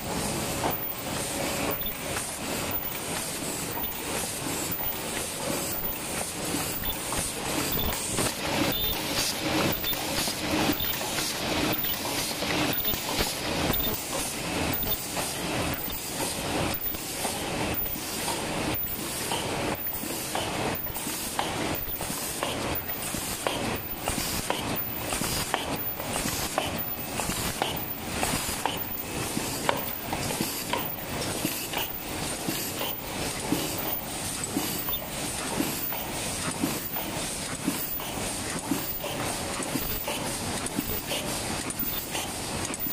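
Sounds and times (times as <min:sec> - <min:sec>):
machine clattering rhythmically: 0:00.0 - 0:42.9.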